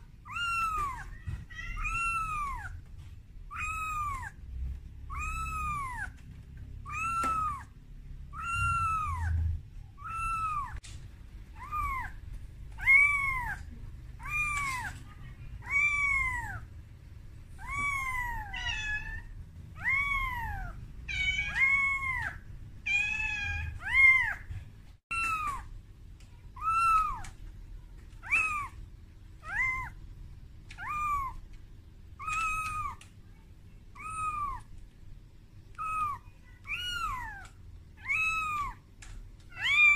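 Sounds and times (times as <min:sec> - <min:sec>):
kitten meowing: 0:00.2 - 0:02.9, 0:03.5 - 0:04.4, 0:05.0 - 0:06.2, 0:06.8 - 0:10.8, 0:11.6 - 0:16.6, 0:17.6 - 0:24.5, 0:25.1 - 0:25.7, 0:26.6 - 0:27.4, 0:28.2 - 0:28.8, 0:29.4 - 0:30.0, 0:30.7 - 0:31.4, 0:32.2 - 0:33.1, 0:33.9 - 0:34.7, 0:35.7 - 0:38.8, 0:39.5 - 0:39.9.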